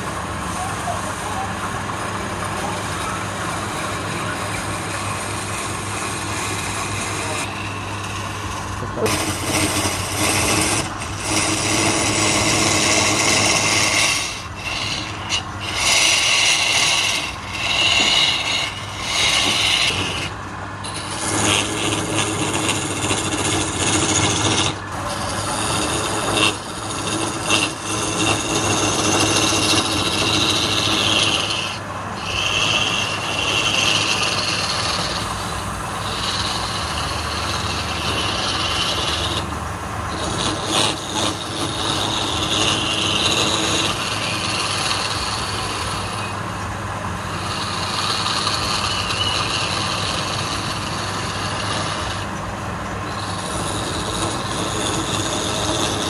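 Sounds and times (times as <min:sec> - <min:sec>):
chisel scraping wood on lathe: 0:00.0 - 0:56.0
lathe motor humming: 0:00.0 - 0:56.0.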